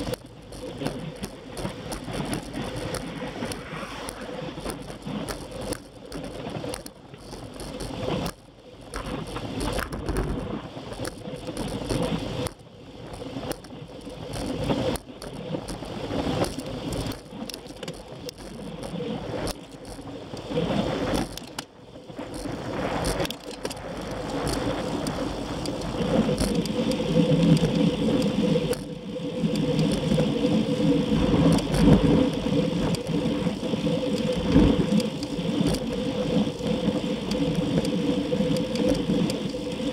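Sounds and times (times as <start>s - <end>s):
low hum: 0.0s - 17.3s
bicycle tyre noise and rattling: 0.0s - 39.9s
wind rushing over microphone: 0.0s - 39.9s.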